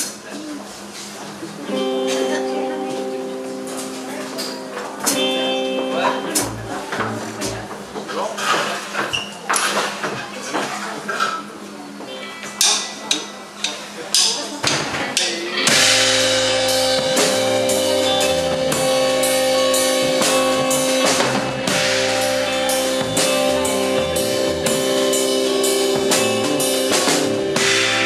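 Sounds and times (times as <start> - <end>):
rock band playing: 1.7 - 8.1, 15.5 - 28.0
drum hits: 4.4 - 8.1, 15.7 - 28.0.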